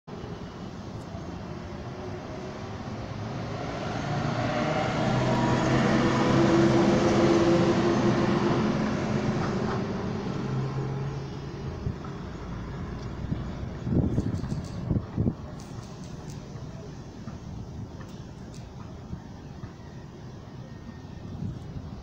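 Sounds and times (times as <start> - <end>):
vehicle engine passing by: 1.9 - 15.3.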